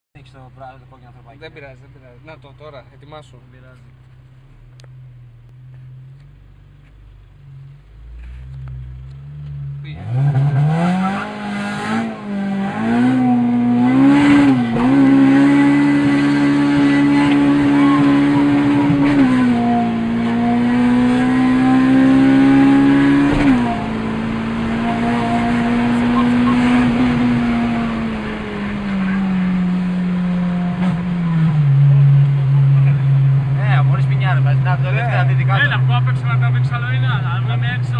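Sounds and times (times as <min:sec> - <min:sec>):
car engine accelerating: 0:00.2 - 0:37.9.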